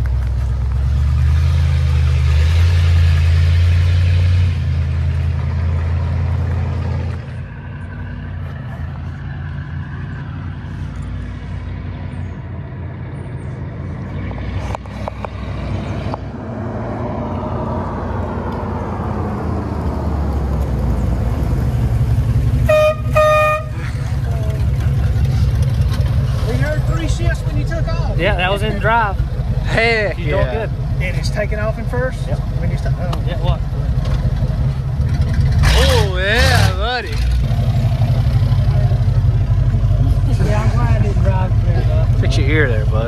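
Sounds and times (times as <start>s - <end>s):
car horn toot: 22.6s - 23.9s.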